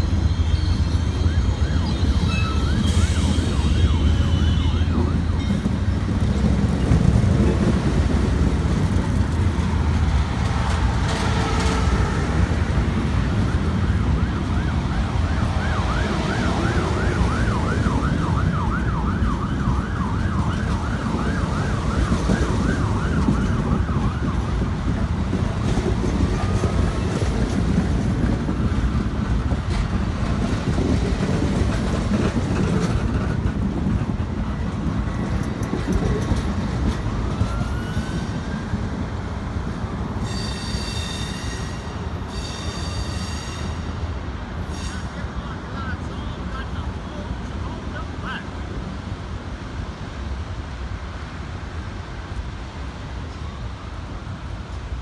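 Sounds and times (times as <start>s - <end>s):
high-pitched wheel squeals: 0.0s - 5.6s, 37.5s - 38.4s, 40.0s - 45.1s
train wheels rumbling on rail: 0.0s - 55.0s
emergency siren wailing: 1.0s - 5.5s, 12.8s - 24.9s.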